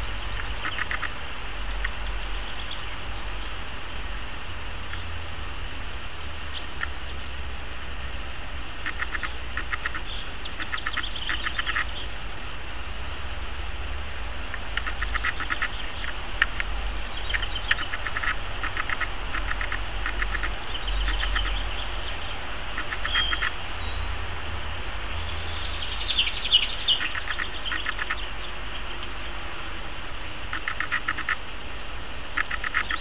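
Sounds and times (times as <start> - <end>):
birds rattling calls: 0.0 - 3.6, 8.8 - 12.2, 14.5 - 24.2, 25.0 - 31.6, 32.3 - 33.0
high bird chirps: 17.1 - 19.0, 20.2 - 24.0, 25.2 - 29.0.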